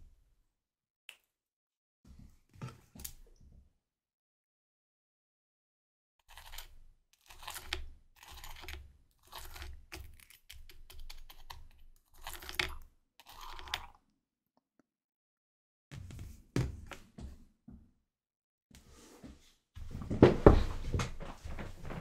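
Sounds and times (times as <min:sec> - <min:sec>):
baguette crunching: 0:06.3 - 0:11.5.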